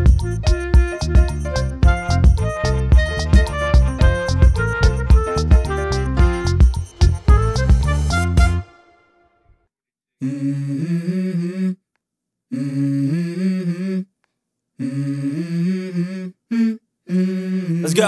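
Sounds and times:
person humming slow melody: 0:10.2 - 0:11.8, 0:12.5 - 0:14.1, 0:14.8 - 0:18.0.

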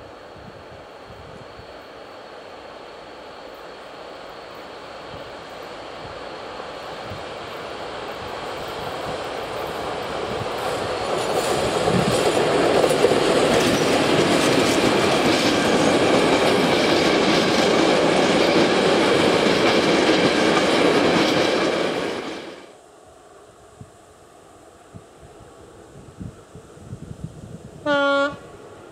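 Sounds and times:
train wheels rolling on rails: 0:00.0 - 0:22.7
electric locomotive passing: 0:00.0 - 0:28.9.

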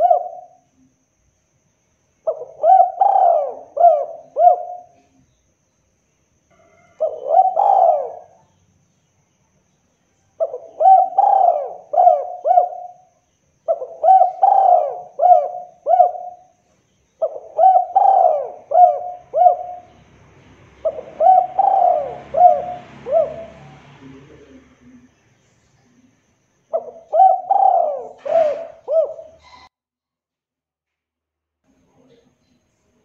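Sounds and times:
dove cooing: 0:00.0 - 0:00.6, 0:02.3 - 0:05.2, 0:06.6 - 0:08.5, 0:10.4 - 0:16.6, 0:17.2 - 0:20.1, 0:20.7 - 0:25.1, 0:26.7 - 0:29.7.

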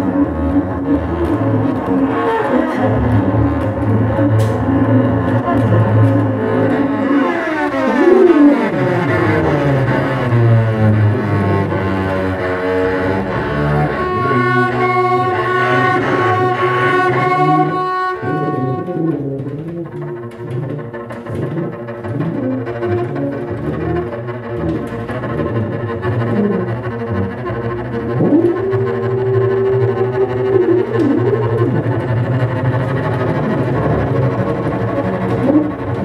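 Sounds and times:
bowed double bass: 0:00.0 - 0:36.0
tuba: 0:07.8 - 0:36.0.

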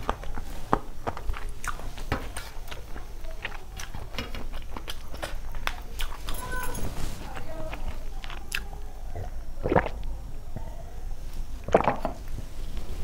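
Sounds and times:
chewing and lip smacking: 0:00.0 - 0:06.6, 0:07.4 - 0:10.1
slurping and gulping water: 0:09.2 - 0:10.1, 0:11.6 - 0:12.4.

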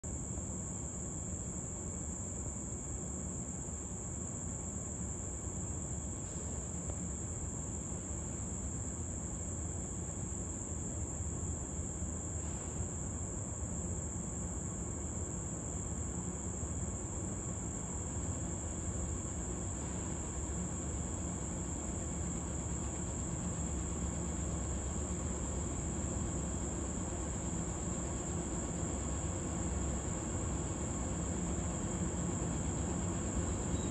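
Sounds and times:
insect chorus: 0:00.1 - 0:33.9
diesel locomotives rumbling: 0:19.7 - 0:33.9.

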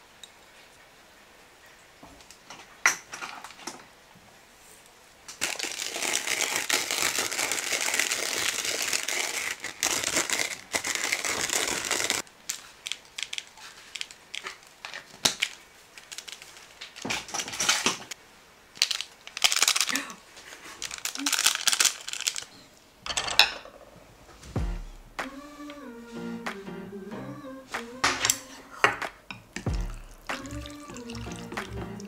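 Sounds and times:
plastic sachet crinkling: 0:05.4 - 0:17.9, 0:18.7 - 0:22.7.

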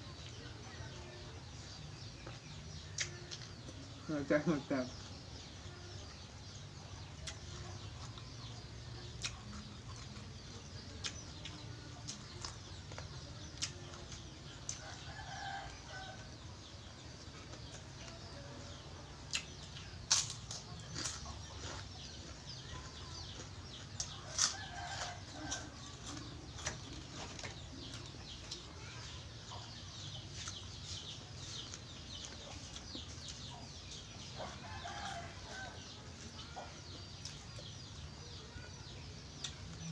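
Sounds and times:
person chewing food: 0:08.9 - 0:14.9, 0:19.3 - 0:28.7.

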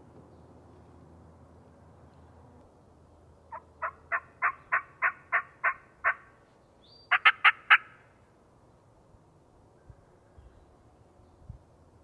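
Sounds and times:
turkey call yelps: 0:03.5 - 0:06.3, 0:07.0 - 0:08.0.

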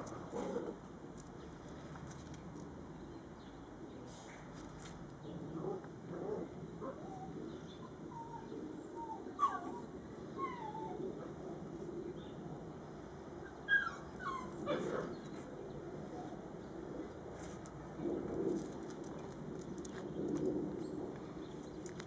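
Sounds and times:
dogs whimpering and yipping: 0:06.8 - 0:11.1, 0:13.5 - 0:15.2.

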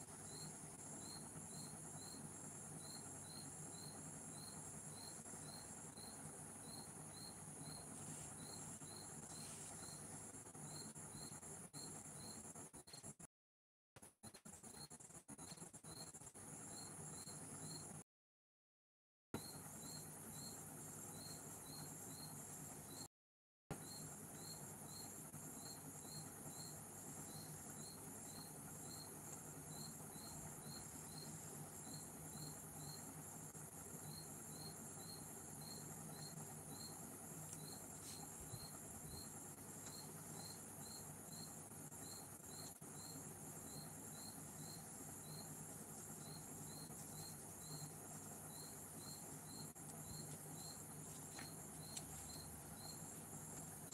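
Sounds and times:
insect chirping: 0:00.0 - 0:13.1, 0:14.6 - 0:18.0, 0:19.4 - 0:23.1, 0:23.7 - 0:53.9
low steady hum: 0:23.7 - 0:53.9.

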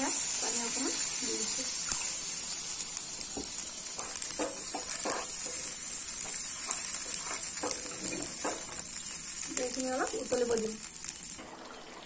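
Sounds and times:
curry sizzling: 0:00.0 - 0:12.0
metal spatula scraping pan: 0:04.0 - 0:05.8.

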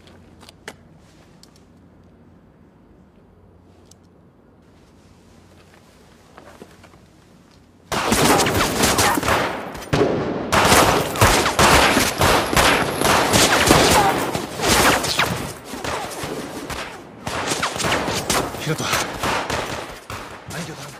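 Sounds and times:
handguns firing rapidly: 0:10.6 - 0:16.3.

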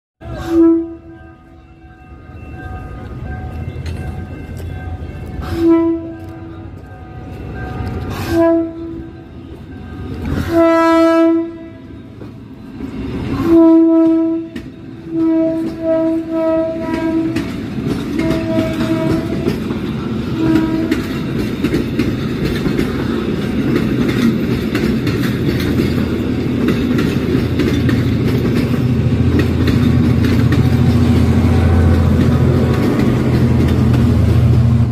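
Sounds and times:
train horn blasts: 0:00.2 - 0:02.4, 0:04.6 - 0:12.2, 0:13.3 - 0:21.3, 0:30.5 - 0:32.7
diesel locomotive engine rumble: 0:00.2 - 0:34.9
train wheels clattering over rail joints: 0:14.4 - 0:34.9.

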